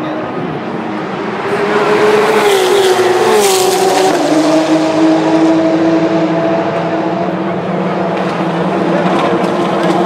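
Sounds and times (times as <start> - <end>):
race cars passing: 0.0 - 10.0
steady engine drone: 3.2 - 10.0.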